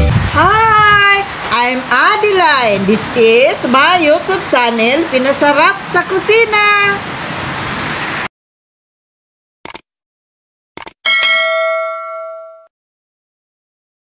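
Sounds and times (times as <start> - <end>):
short clicks: 9.6 - 9.9, 10.8 - 11.0
notification bell ding: 11.1 - 12.7.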